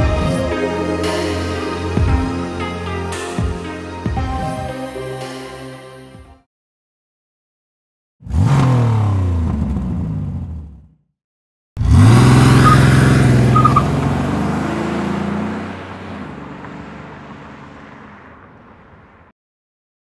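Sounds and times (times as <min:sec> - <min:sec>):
high tire squeaks: 0:12.5 - 0:14.9.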